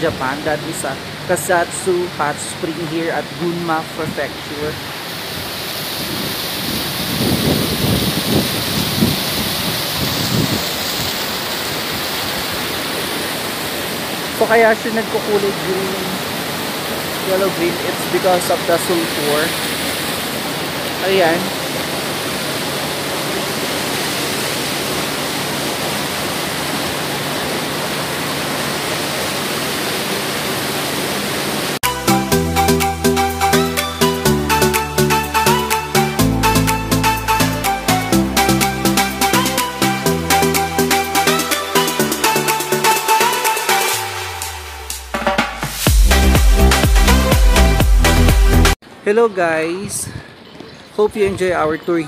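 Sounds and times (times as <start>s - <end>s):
water rushing and splashing: 0.0s - 52.0s
electronic music: 31.8s - 48.8s.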